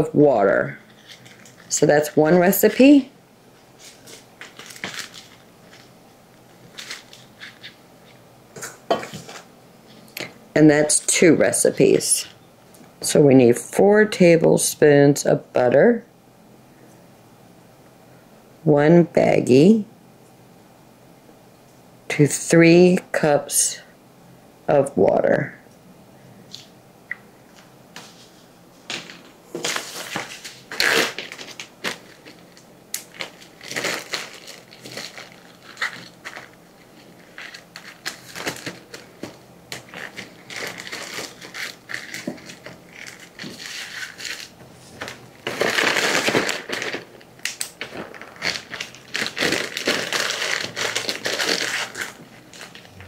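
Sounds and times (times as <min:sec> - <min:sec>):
plastic bags crinkling and rustling: 0:00.9 - 0:01.8, 0:03.7 - 0:08.2, 0:28.9 - 0:53.0.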